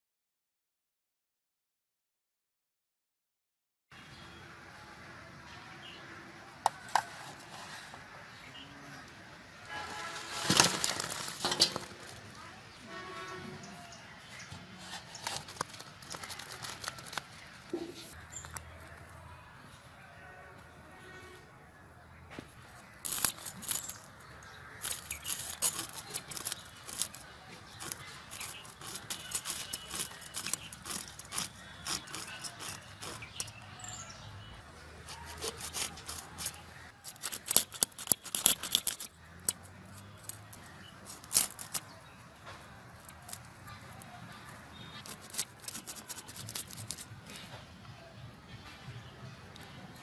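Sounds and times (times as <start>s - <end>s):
fish scales scraping on blade: 23.0s - 24.1s, 24.7s - 33.7s, 35.0s - 41.9s, 44.7s - 47.1s.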